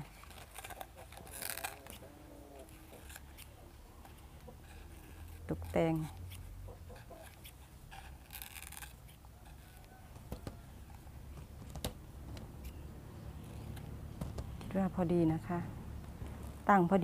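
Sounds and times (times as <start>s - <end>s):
scissors snipping leaf: 0.0s - 6.5s.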